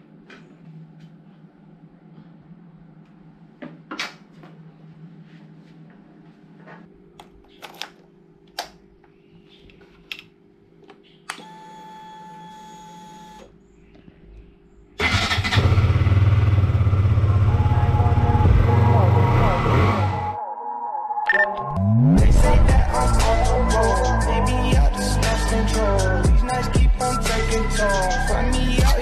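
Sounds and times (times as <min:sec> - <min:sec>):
ignition electric buzz: 0:11.3 - 0:13.6
motorcycle engine idling: 0:15.6 - 0:19.0.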